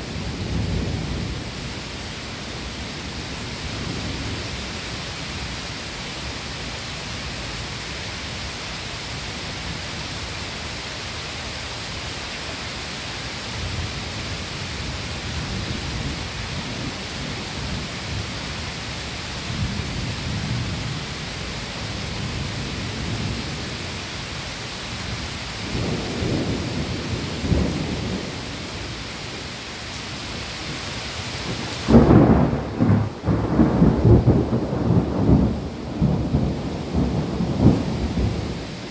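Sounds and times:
steady rain falling: 0.0s - 38.9s
thunder rumbling: 25.6s - 29.1s, 31.5s - 38.9s
thunder clap: 31.9s - 38.6s.

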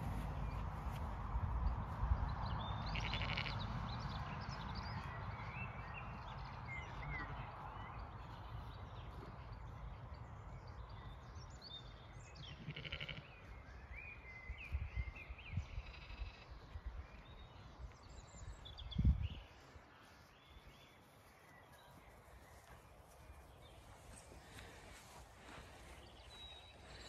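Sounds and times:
small birds chirping: 0.0s - 27.0s
sheep bleating: 2.9s - 3.6s, 12.6s - 13.3s.

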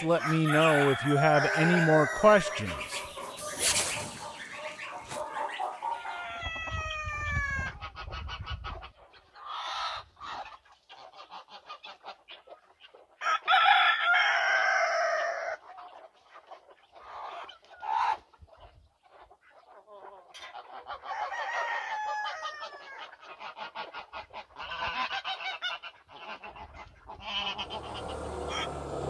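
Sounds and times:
rooster crowing: 0.0s - 7.7s, 13.2s - 15.5s, 21.1s - 23.0s, 27.5s - 29.0s
rooster clucking: 0.0s - 8.7s, 26.3s - 29.0s.

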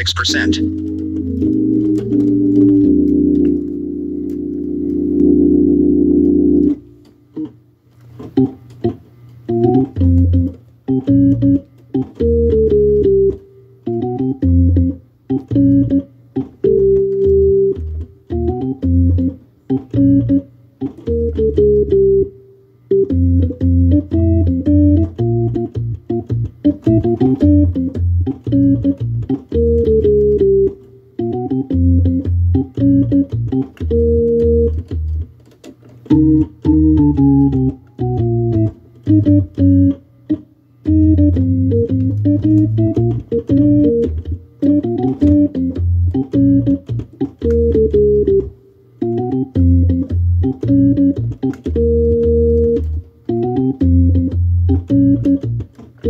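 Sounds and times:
bass line: 0.0s - 6.8s, 16.6s - 20.4s, 23.0s - 35.3s, 36.1s - 40.0s, 40.8s - 55.8s
organ chords: 0.0s - 56.0s.

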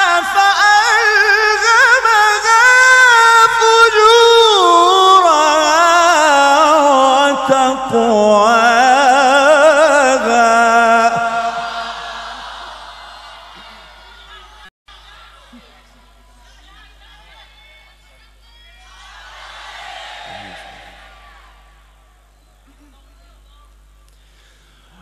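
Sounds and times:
man chanting recitation: 0.0s - 12.0s.

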